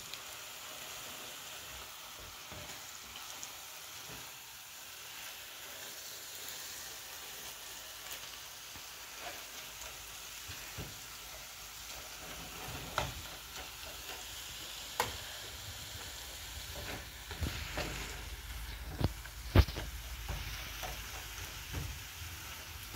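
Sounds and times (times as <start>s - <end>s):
meat sizzling in a frying pan: 0.0s - 22.9s
spatula scraping a pan: 8.8s - 22.6s.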